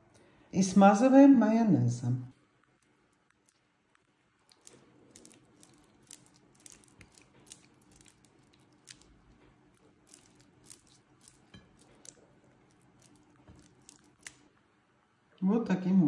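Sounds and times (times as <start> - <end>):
spatula squishing mayonnaise: 2.4 - 14.5.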